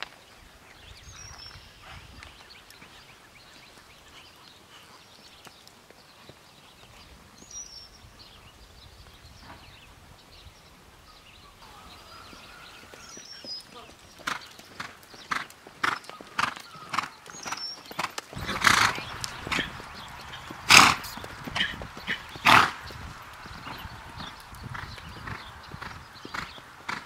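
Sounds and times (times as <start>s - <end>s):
horse hoofbeats on dirt: 11.7s - 27.0s.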